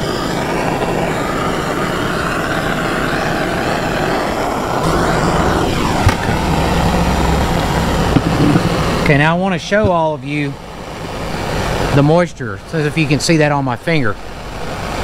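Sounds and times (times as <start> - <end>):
propane torch hissing: 0.0 - 15.0
low steady hum: 4.1 - 15.0.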